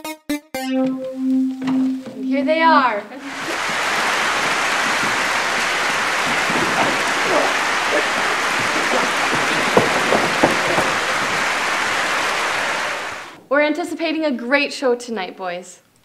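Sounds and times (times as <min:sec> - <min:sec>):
crowd applause: 0:03.2 - 0:13.4.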